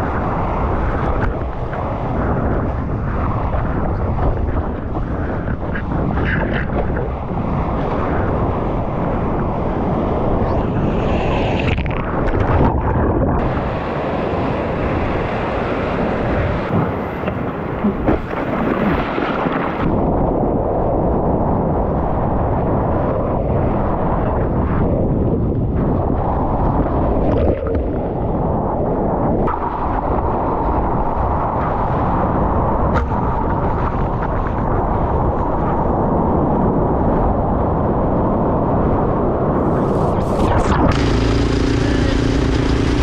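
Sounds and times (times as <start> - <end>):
rushing seawater: 0.0 - 20.0
wind buffeting microphone: 0.0 - 43.0.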